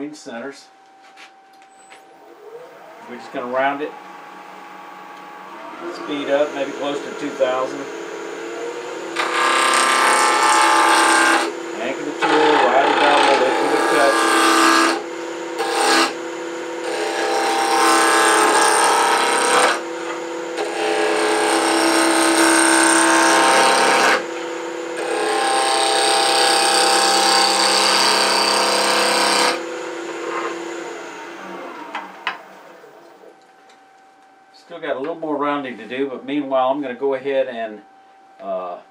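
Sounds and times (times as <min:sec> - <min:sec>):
lathe motor humming: 0:02.1 - 0:33.2
gouge cutting wood on lathe: 0:02.9 - 0:24.3, 0:24.9 - 0:31.2.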